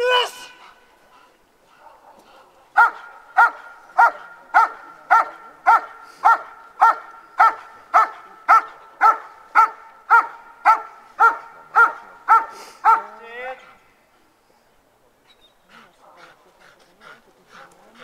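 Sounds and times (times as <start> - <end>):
dog barking: 1.7 - 13.2.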